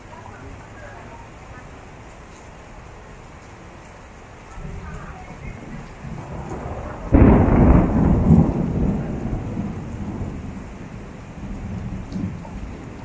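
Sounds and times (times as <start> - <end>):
rain on pavement: 0.0 - 13.0
thunder clap rumbling: 4.5 - 13.0.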